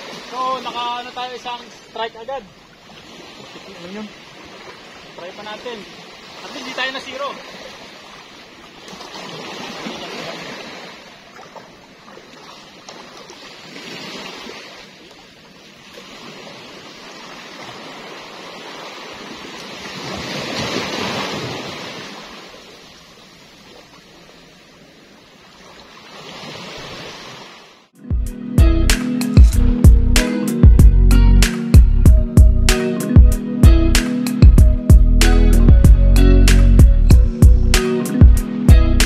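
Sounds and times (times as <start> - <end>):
small waves washing ashore: 0.0 - 27.9.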